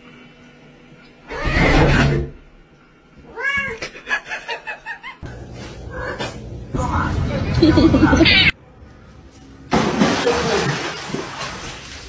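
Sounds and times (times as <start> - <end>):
cat meowing: 3.3 - 3.8.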